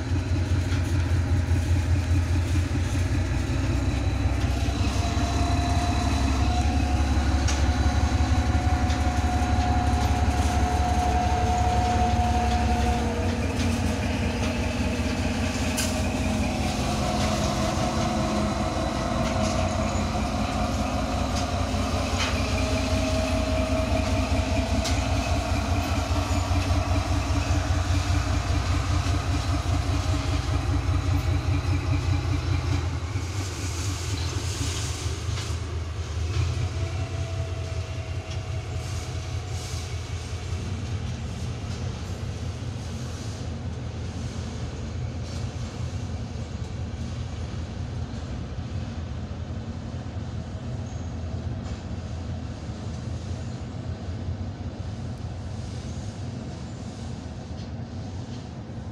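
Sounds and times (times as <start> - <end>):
wheels clicking over rail joints: 0.0 - 43.0
locomotive engine rumble: 0.0 - 58.9.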